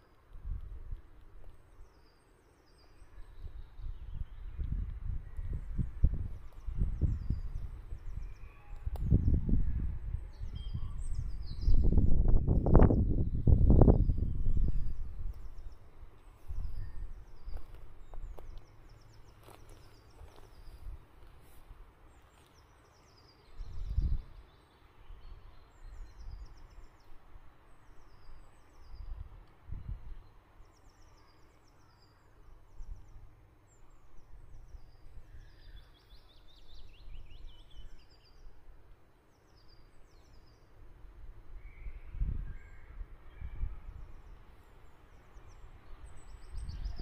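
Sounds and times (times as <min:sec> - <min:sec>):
small birds chirping: 0:00.0 - 0:40.8, 0:41.6 - 0:47.0.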